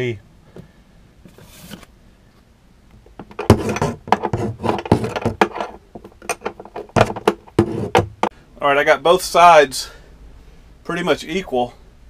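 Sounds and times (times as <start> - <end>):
camera handling knocks and rubbing: 3.0 - 8.3.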